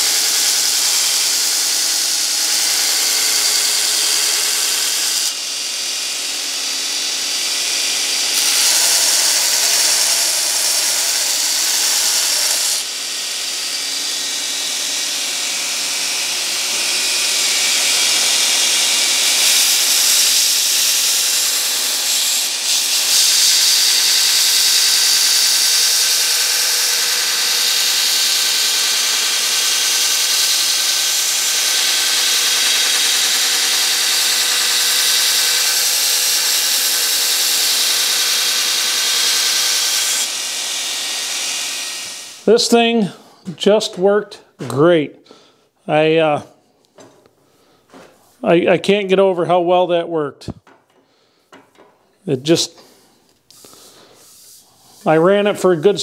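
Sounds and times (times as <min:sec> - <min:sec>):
belt grinder motor hum: 0:00.0 - 0:42.7
steel grinding on abrasive belt: 0:00.0 - 0:43.0, 0:53.5 - 0:56.0.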